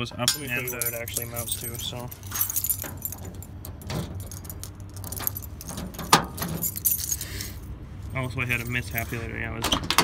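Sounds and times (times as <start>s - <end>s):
steady low rumble: 0.0s - 9.5s.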